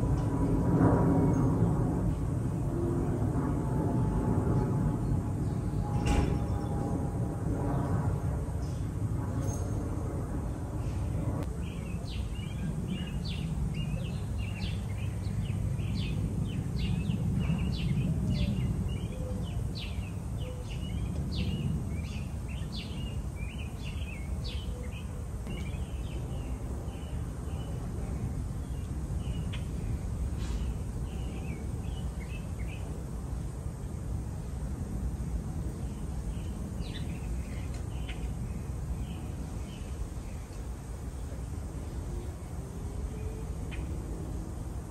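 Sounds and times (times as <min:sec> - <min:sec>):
small birds chirping: 0:10.8 - 0:33.0, 0:35.8 - 0:40.6.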